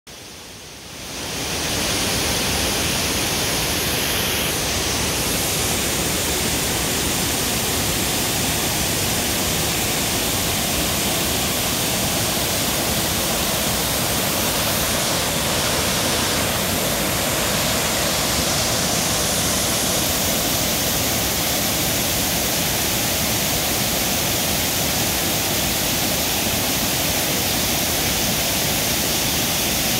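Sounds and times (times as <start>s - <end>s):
water rushing over rapids: 0.1s - 29.9s.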